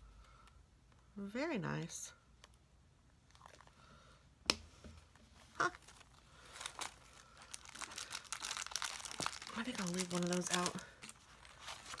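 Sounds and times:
paper and packaging crinkling: 5.3 - 12.0.

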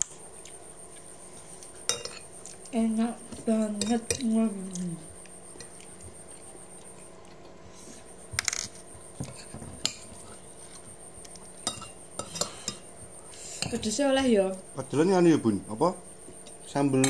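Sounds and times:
spoons clinking against plates: 1.9 - 2.3, 3.6 - 4.4, 11.6 - 12.9.

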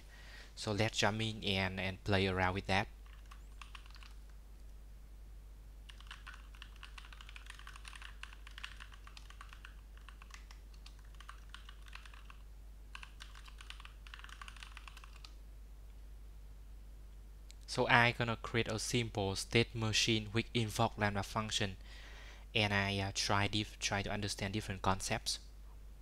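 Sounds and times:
typing on computer keyboard: 3.0 - 4.2, 5.9 - 15.4.

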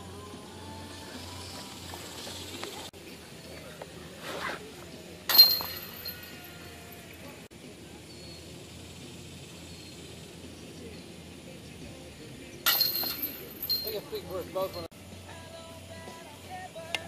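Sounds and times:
outdoor background noise: 0.0 - 17.0
disc clashing into metal chains: 5.3 - 7.3, 12.6 - 14.9.

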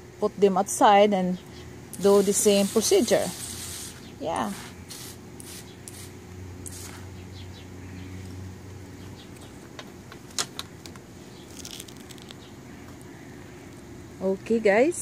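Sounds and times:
sprayer wand hissing: 1.9 - 7.2.

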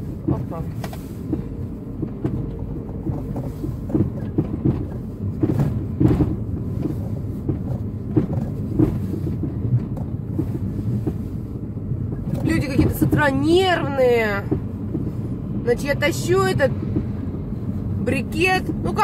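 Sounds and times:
car engine and tyres rumbling: 0.0 - 19.0
knocks and rattles: 1.3 - 11.3.

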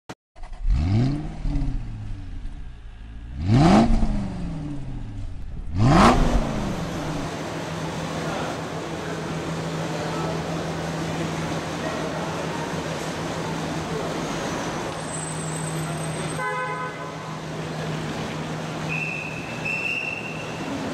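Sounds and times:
car engine starting and revving: 0.4 - 15.0.

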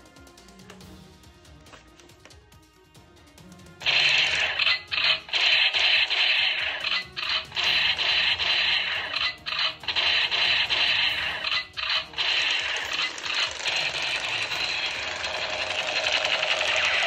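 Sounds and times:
toy rifle shooting sound effects: 3.8 - 17.0.

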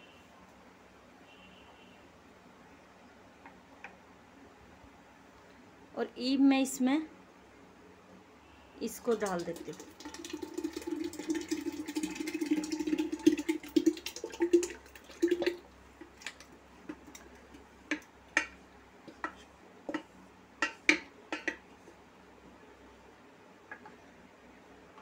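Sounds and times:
thick batter pouring into water: 9.0 - 17.6
spoon scraping and tapping bowl: 17.9 - 21.6.

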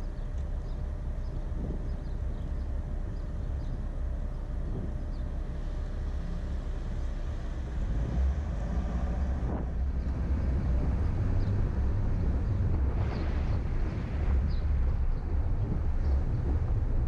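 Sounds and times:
car engine and road rumble: 0.0 - 17.0.

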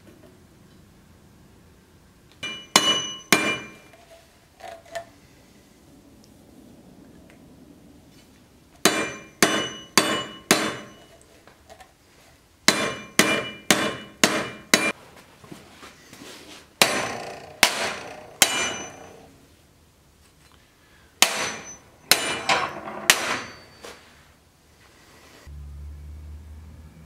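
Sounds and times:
hammer striking steel blade: 2.4 - 3.9, 8.8 - 11.1, 12.7 - 15.0, 16.8 - 19.3, 21.2 - 23.8
blade ringing: 2.4 - 4.0, 8.9 - 11.2, 16.8 - 19.3, 21.2 - 23.9.

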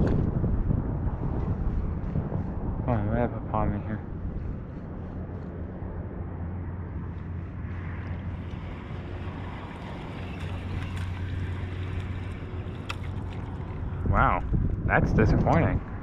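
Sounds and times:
low hum: 0.0 - 16.0
wind: 0.0 - 16.0
water lapping: 7.5 - 14.6.

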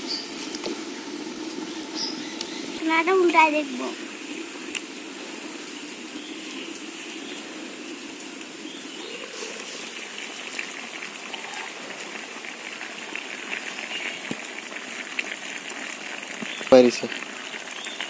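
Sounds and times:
curry sizzling in a pan: 0.0 - 18.0.

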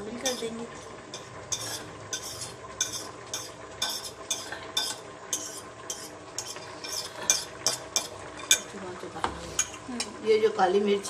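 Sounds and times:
fork scraping ceramic plate: 1.1 - 8.7, 9.4 - 9.8.

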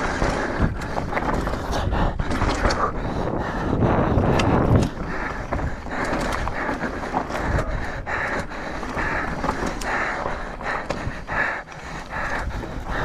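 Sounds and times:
bike knocks and rattles: 0.0 - 13.0
rider panting: 0.0 - 13.0
wind buffeting microphone: 0.0 - 13.0
tyres crunching over dirt: 4.2 - 11.3.

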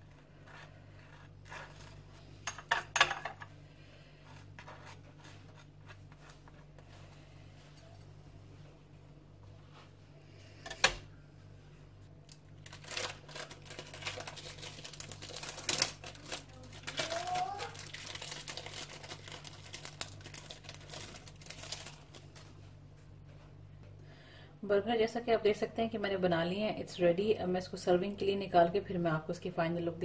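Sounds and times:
thin plastic crinkling: 12.2 - 22.7.

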